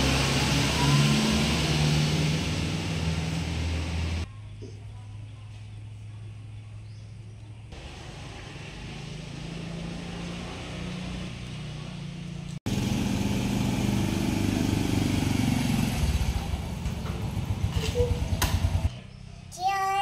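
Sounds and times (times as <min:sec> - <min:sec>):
motorbike engine: 0:00.0 - 0:04.3, 0:07.7 - 0:19.0.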